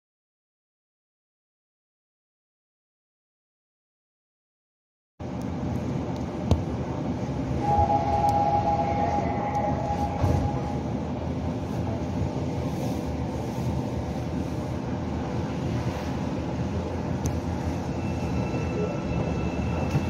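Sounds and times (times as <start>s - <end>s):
subway train hum and rumble: 5.2s - 20.0s
steady electronic tone: 7.6s - 11.1s.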